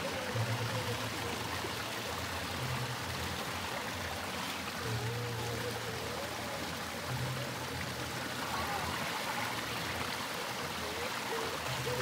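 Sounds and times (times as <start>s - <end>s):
water pouring into a pool: 0.0s - 12.0s.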